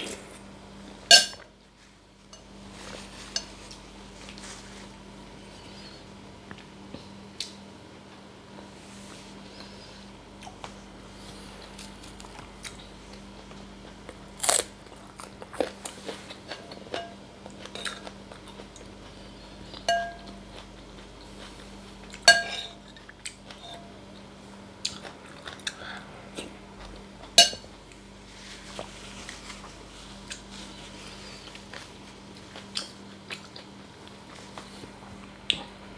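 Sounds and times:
faint steady hum: 0.0s - 35.9s
spoon clinking on ceramic bowl: 19.9s - 20.4s, 22.3s - 22.8s, 27.4s - 27.6s
chewing and mouth sounds: 24.2s - 28.0s, 31.4s - 35.7s.

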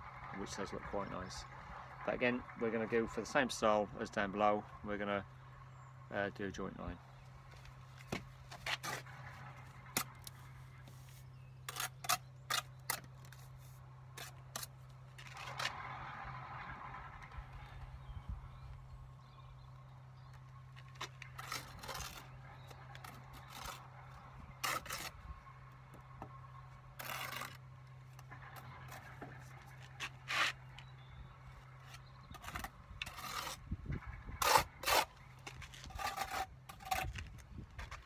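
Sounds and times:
brick jointer scraping mortar: 8.1s - 18.6s, 20.2s - 38.0s.

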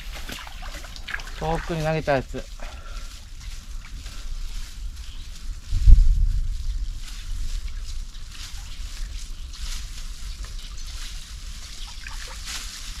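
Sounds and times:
river water sloshing and splashing: 0.0s - 2.5s, 7.4s - 13.0s
water dripping: 0.0s - 2.6s, 7.0s - 13.0s
steady low rumble: 0.6s - 11.8s.

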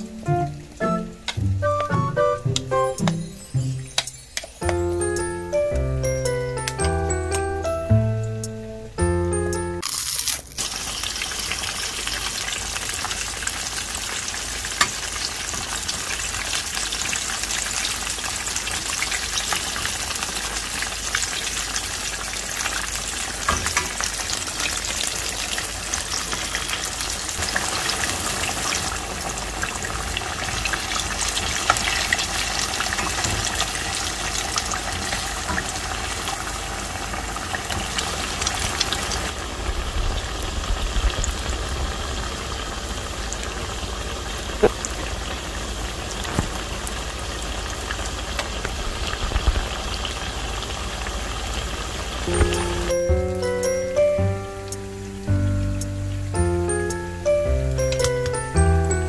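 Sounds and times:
food deep-frying in oil: 9.8s - 53.7s.

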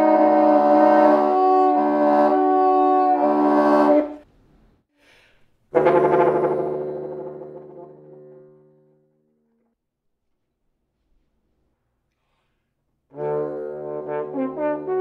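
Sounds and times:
french horn and bassoon duet: 0.0s - 4.3s, 5.7s - 8.9s, 13.1s - 15.0s.

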